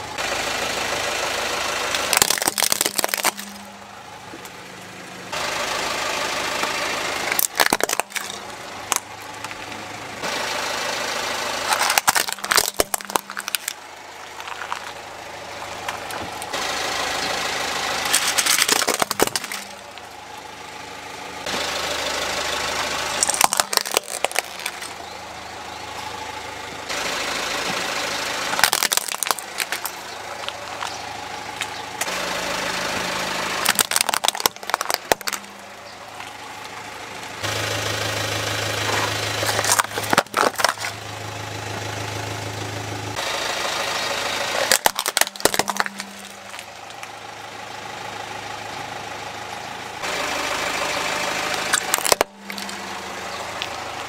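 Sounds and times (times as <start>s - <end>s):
car engine running: 0.0s - 54.0s
tyre crushing plastic toys: 1.9s - 3.7s, 7.2s - 9.8s, 11.6s - 15.0s, 18.0s - 20.0s, 23.2s - 25.0s, 28.5s - 31.0s, 33.6s - 35.6s, 39.0s - 41.1s, 44.6s - 47.1s, 51.7s - 52.8s.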